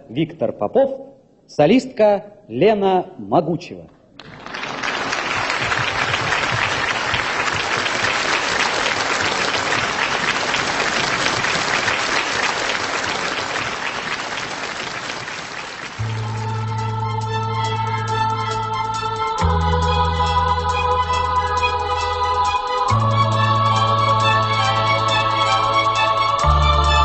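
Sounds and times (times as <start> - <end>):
audience applauding: 4.2 - 16.4
organ-like keyboard chord: 16.0 - 27.0.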